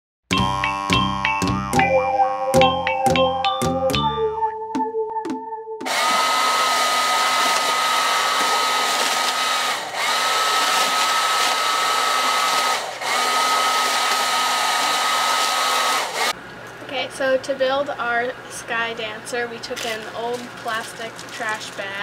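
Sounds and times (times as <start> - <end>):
hairdryer blowing with whine: 5.8 - 16.4.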